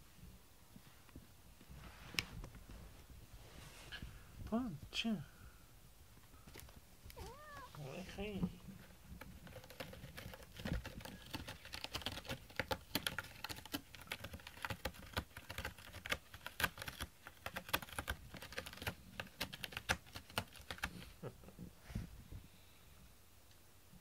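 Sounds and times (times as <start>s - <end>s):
cat scratching cardboard: 8.6s - 21.1s.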